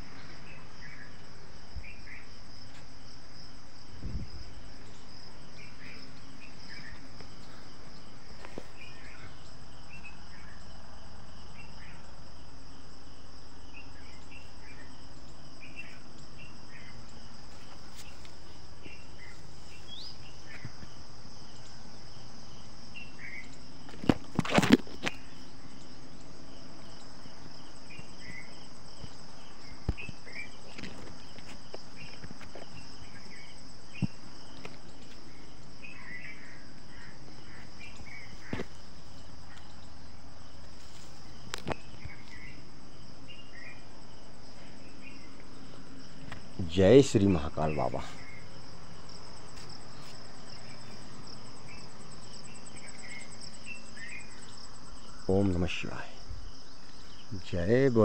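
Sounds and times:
crickets chorus: 0.0s - 58.0s
short insect chirps: 0.0s - 58.0s.

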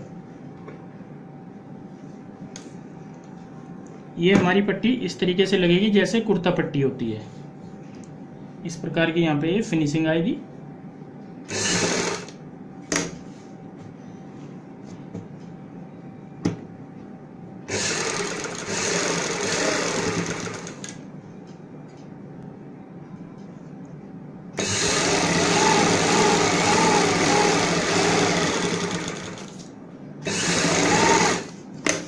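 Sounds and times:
electric sewing machine stitching: 11.5s - 12.3s, 17.7s - 21.0s, 24.6s - 31.6s.

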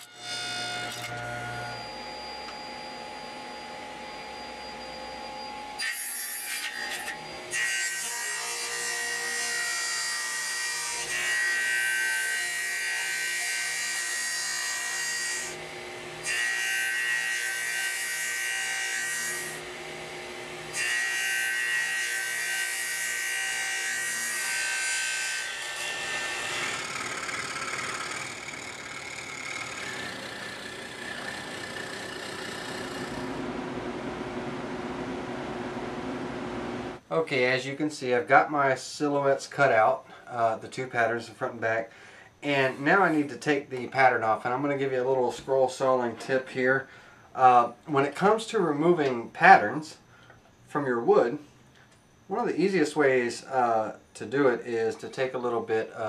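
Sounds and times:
table saw cutting wood: 0.0s - 33.6s.

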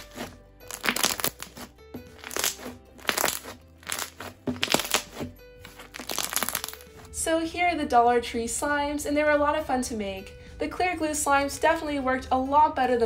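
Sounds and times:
slime crunching and popping: 0.0s - 6.9s
soft background music: 0.0s - 13.0s.

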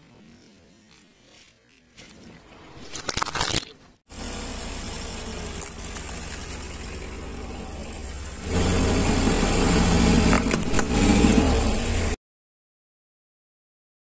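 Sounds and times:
plastic toy cracking: 2.8s - 3.8s
car engine idling: 4.1s - 12.2s.

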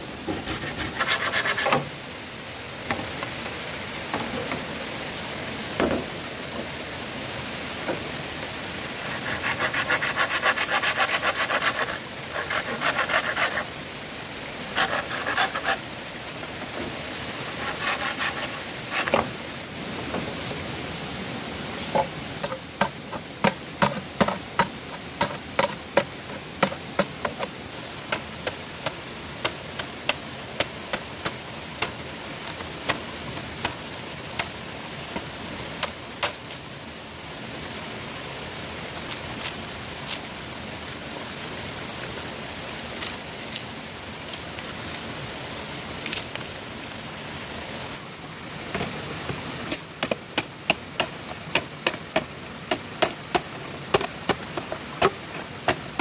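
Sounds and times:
rasping strokes on bamboo: 0.2s - 1.9s, 9.0s - 13.8s, 14.7s - 15.9s, 17.4s - 19.3s, 21.7s - 27.5s, 28.1s - 36.4s, 49.7s - 56.0s
sharp knocks on bamboo: 21.9s - 27.5s, 49.7s - 55.8s.

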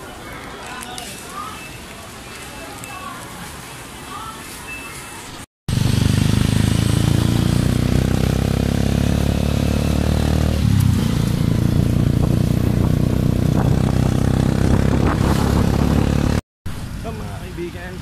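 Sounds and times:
motorcycle engine running: 5.7s - 16.4s.

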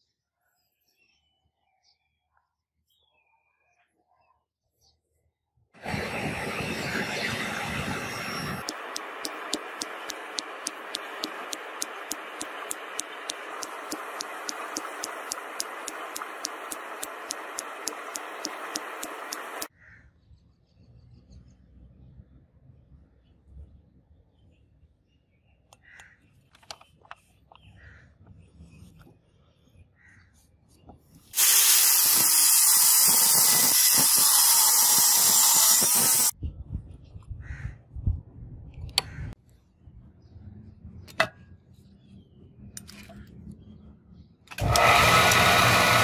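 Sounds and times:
angle grinder cutting steel: 5.8s - 19.7s, 31.4s - 36.3s, 44.6s - 46.0s
steady hiss: 31.4s - 36.3s.

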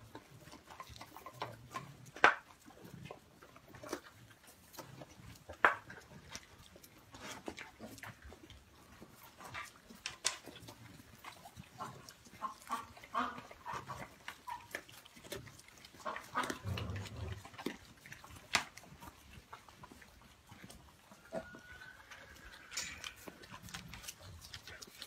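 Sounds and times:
animals crunching vegetables: 0.0s - 25.0s
pig grunting: 10.6s - 25.0s.

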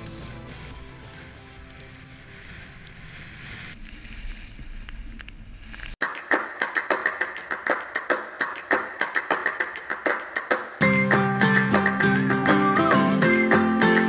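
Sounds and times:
wind and snow rushing: 0.4s - 6.0s
strummed acoustic guitar: 10.8s - 14.0s.

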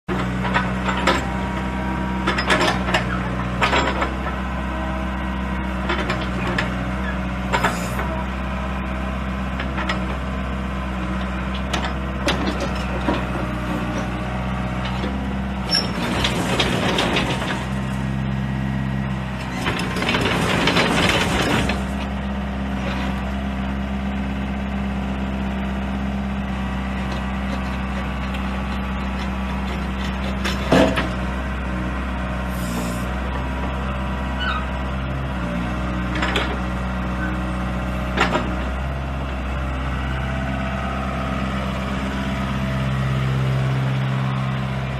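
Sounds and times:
excavator diesel engine running: 0.1s - 44.9s.

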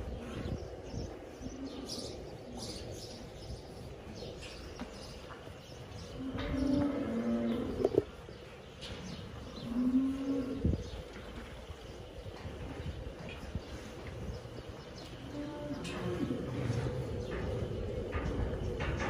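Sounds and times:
small birds chirping: 0.0s - 19.0s
cows mooing: 6.1s - 8.1s.

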